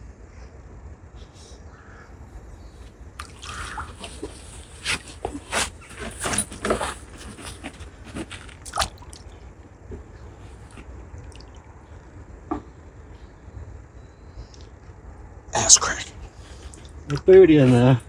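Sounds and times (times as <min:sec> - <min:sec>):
water splashing and dripping: 0:03.2 - 0:04.5, 0:08.6 - 0:09.3, 0:11.2 - 0:11.7.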